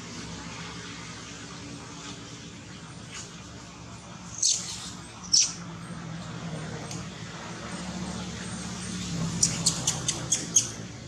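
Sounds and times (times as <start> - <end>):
baby monkey squeaking: 4.3 - 5.6, 9.4 - 10.8.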